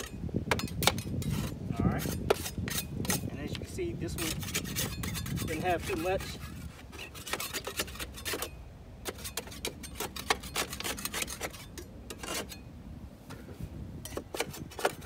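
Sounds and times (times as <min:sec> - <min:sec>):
hand scraper rasping on mower deck: 0:00.0 - 0:12.6, 0:14.0 - 0:15.0.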